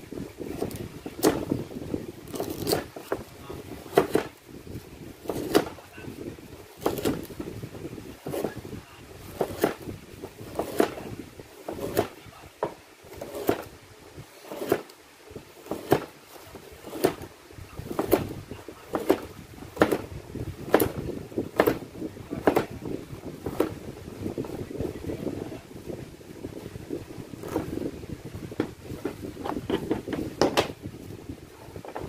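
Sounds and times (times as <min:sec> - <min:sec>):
knife slicing carrot: 0:02.3 - 0:03.2, 0:03.8 - 0:04.3, 0:05.2 - 0:05.8, 0:06.8 - 0:07.4, 0:09.3 - 0:09.8, 0:10.5 - 0:11.1, 0:11.7 - 0:12.2, 0:13.2 - 0:13.7, 0:14.5 - 0:14.9, 0:15.7 - 0:16.1, 0:16.8 - 0:17.3, 0:17.9 - 0:20.1.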